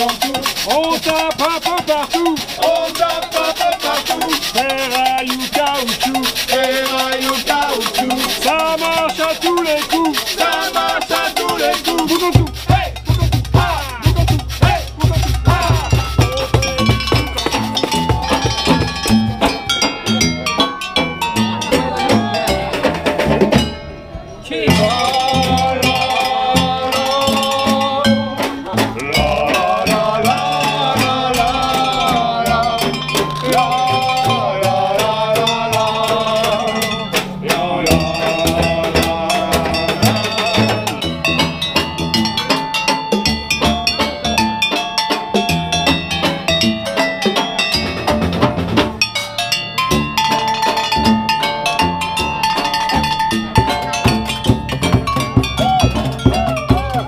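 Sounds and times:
drums beating: 0.0s - 24.1s, 24.7s - 57.0s
clanking metal percussion: 0.0s - 57.0s
pitched melody: 0.0s - 57.0s.

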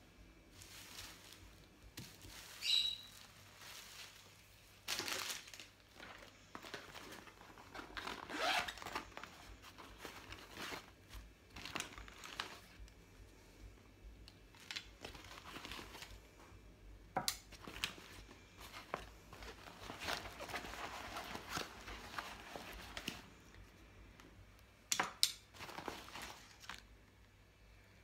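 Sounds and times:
plastic bags rustling: 0.5s - 13.0s, 14.3s - 16.5s, 17.4s - 23.6s, 25.4s - 27.0s.

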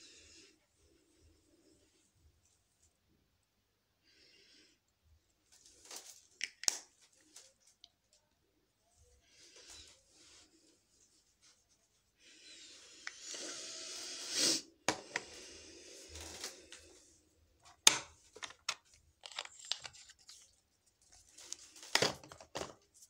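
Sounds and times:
rustling handling noise: 5.4s - 8.2s, 17.6s - 23.0s
clicks and taps of small objects: 6.4s - 6.9s, 17.7s - 20.1s.

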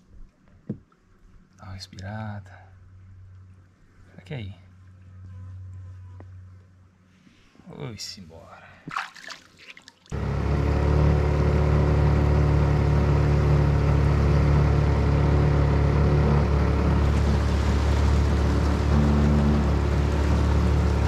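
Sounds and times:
boat outboard motor running: 10.1s - 21.0s.

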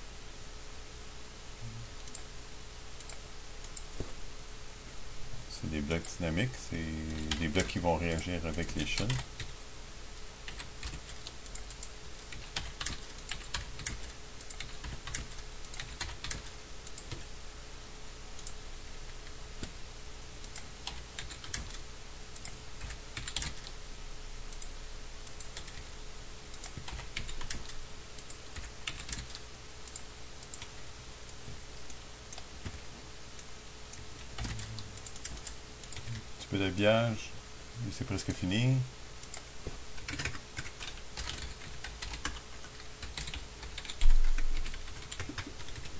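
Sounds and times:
faint steady hum: 0.0s - 45.9s
keyboard keys tapping: 10.5s - 17.3s, 20.5s - 21.8s, 22.4s - 23.7s, 26.6s - 30.7s, 32.3s - 32.8s, 39.3s - 45.9s.

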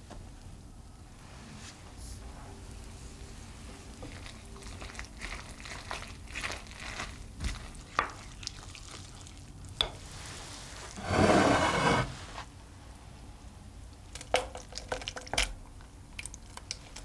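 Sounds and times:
spoon mixing wet batter: 4.0s - 9.9s.

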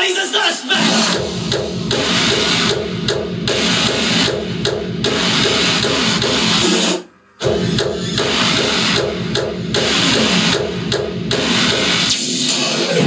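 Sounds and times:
music with drums and guitar: 1.0s - 13.0s.

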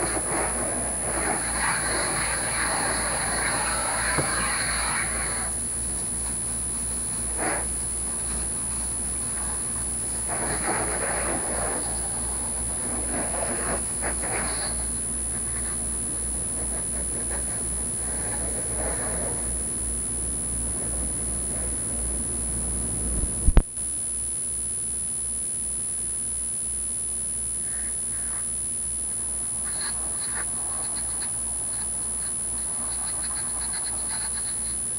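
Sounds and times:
hose spraying water on car: 0.0s - 6.5s, 7.2s - 15.7s.

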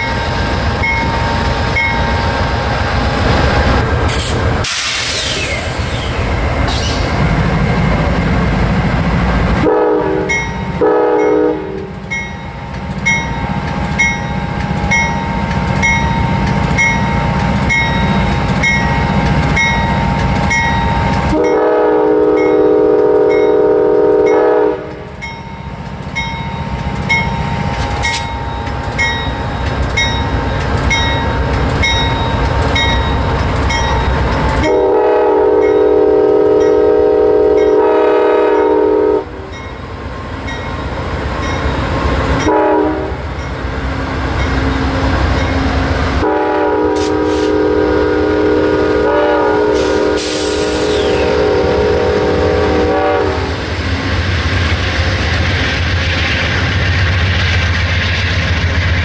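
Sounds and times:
locomotive bell ringing: 0.0s - 2.3s, 10.3s - 24.5s, 25.2s - 38.9s, 39.5s - 42.7s, 43.4s - 43.8s, 44.4s - 45.8s
diesel locomotive engines rumbling: 0.0s - 59.0s
train air horn blasts: 9.6s - 11.9s, 21.3s - 25.1s, 34.6s - 39.5s, 42.4s - 43.2s, 46.2s - 53.6s.

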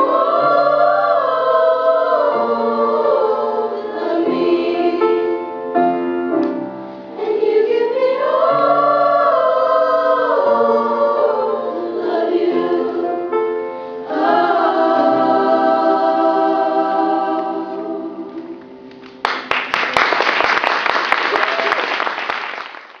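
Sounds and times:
choir singing: 0.0s - 6.0s, 7.1s - 18.9s
audience applause: 19.2s - 23.0s.

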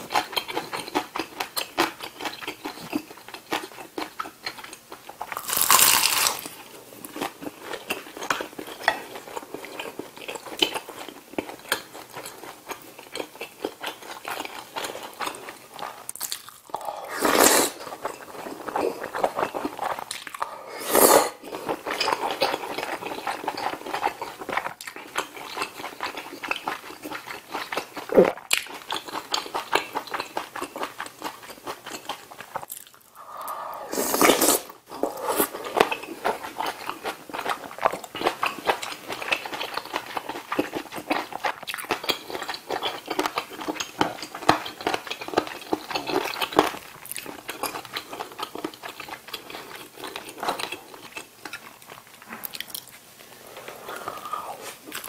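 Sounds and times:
wet chewing: 7.1s - 20.6s, 21.4s - 55.0s
slurping noodles and broth: 16.7s - 24.2s, 33.1s - 36.8s, 53.2s - 55.0s.

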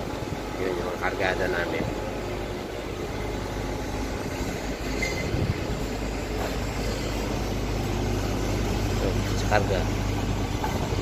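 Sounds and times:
machinery rumble and hum: 0.0s - 11.0s
high squeal: 4.8s - 5.5s.

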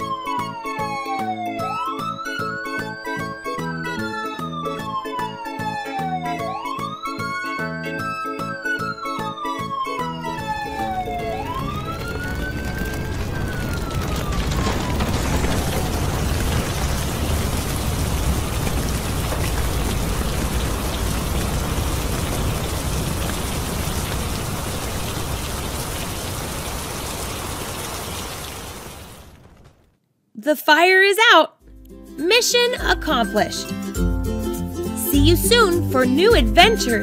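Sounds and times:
rising and falling tone: 8.5s - 16.4s.

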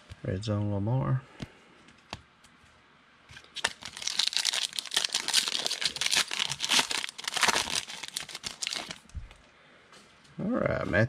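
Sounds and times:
foil wrapper tearing and crinkling: 3.5s - 9.1s.

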